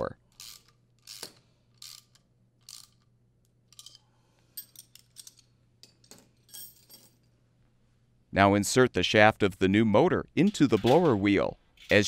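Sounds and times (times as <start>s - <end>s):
socket ratchet clicking: 0.4s - 3.1s.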